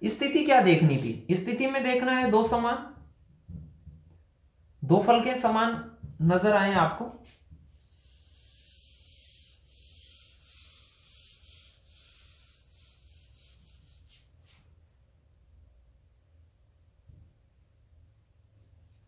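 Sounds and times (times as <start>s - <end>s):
palm rubbing on screen: 7.2s - 14.7s.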